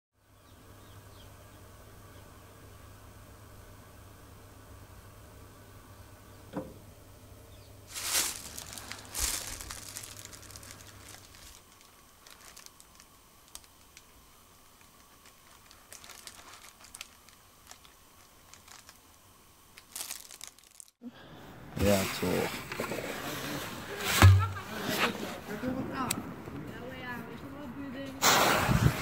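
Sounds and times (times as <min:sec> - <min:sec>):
light crackles: 0:07.9 - 0:21.0
plastic bag crinkling: 0:07.9 - 0:21.0.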